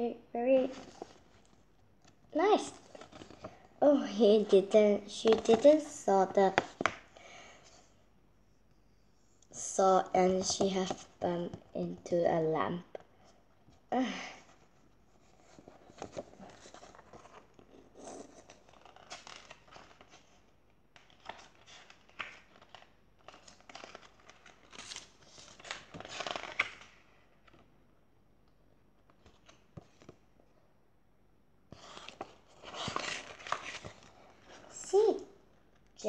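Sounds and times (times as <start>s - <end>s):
paper pages rustling and crinkling: 0.6s - 7.1s, 10.0s - 11.8s, 14.5s - 27.7s, 29.0s - 30.3s, 31.7s - 34.8s.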